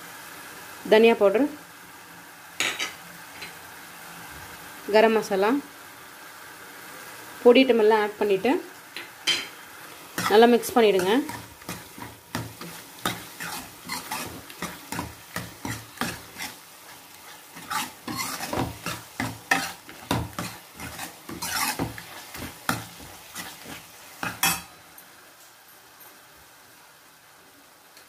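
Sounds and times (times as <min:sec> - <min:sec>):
faint sizzle: 0:00.0 - 0:28.0
metal ladle stirring and scraping: 0:10.2 - 0:24.7.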